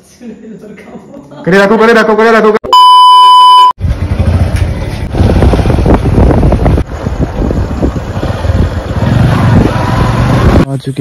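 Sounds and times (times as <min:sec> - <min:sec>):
test-tone beep: 0:02.7 - 0:03.8
wind noise on microphone: 0:05.0 - 0:10.7.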